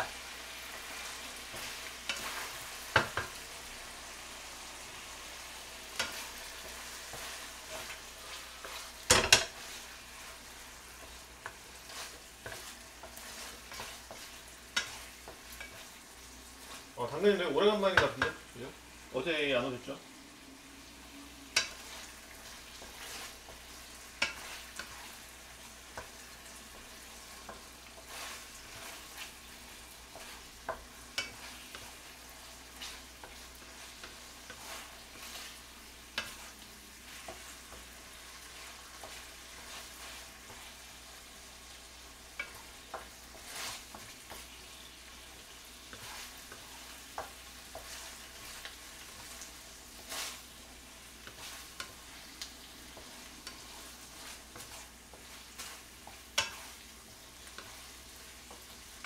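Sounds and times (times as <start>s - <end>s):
wooden spatula scraping pan: 0.0s - 3.4s, 5.8s - 18.4s, 21.5s - 59.0s
rice cakes sizzling in oil: 0.0s - 59.0s.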